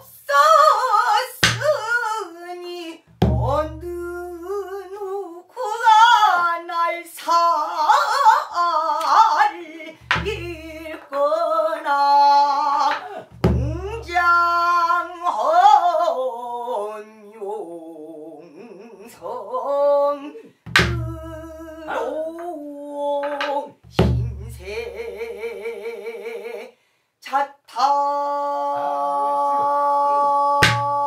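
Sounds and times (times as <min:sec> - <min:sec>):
woman singing: 0:00.0 - 0:31.0
barrel drum strikes: 0:10.1 - 0:10.6, 0:20.7 - 0:21.3.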